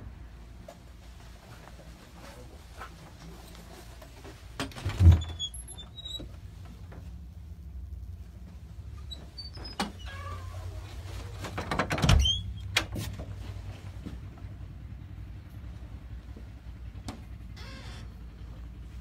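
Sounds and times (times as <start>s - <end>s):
steady low hum: 6.3s - 9.4s, 12.9s - 19.0s.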